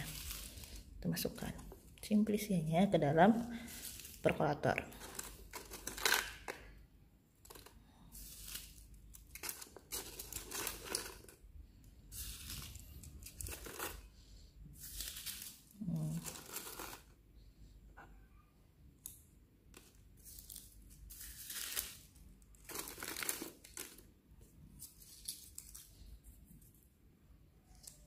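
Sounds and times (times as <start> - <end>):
paper rustling and crinkling: 0.0 - 0.9, 3.6 - 4.3, 7.5 - 11.4, 12.1 - 14.1, 14.8 - 17.1, 19.8 - 24.0, 24.8 - 26.8.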